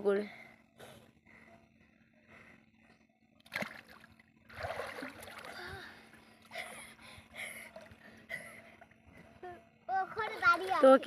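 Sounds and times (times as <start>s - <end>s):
water splashing and sloshing: 3.4s - 6.8s.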